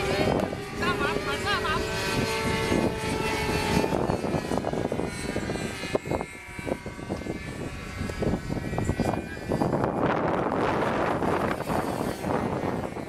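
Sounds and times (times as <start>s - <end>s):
model airplane motor droning: 0.0s - 13.0s
wind buffeting microphone: 0.0s - 13.0s.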